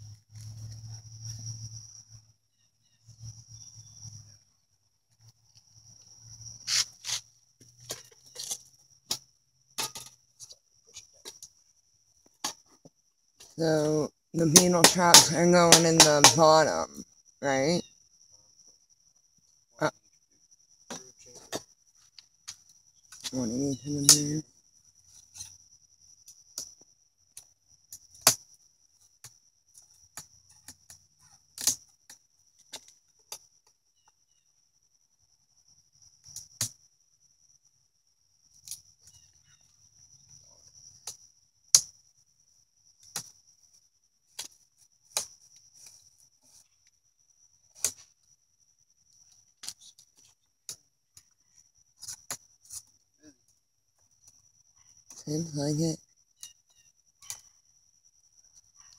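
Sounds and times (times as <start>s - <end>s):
crickets trilling: 0.0s - 58.9s
wooden hive parts clicking and knocking: 12.2s - 16.7s, 29.1s - 34.2s.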